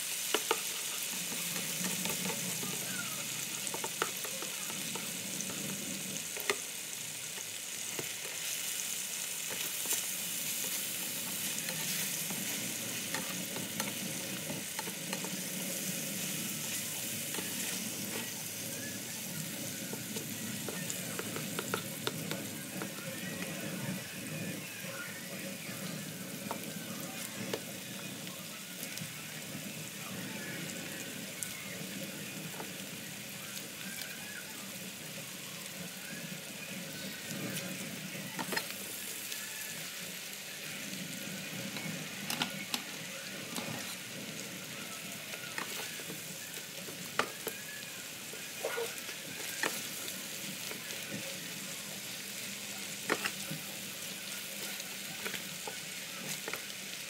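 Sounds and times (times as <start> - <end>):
food sizzling in a skillet: 0.0 - 57.0
spatula scraping a pan: 0.2 - 2.8, 9.4 - 24.4, 41.7 - 44.5.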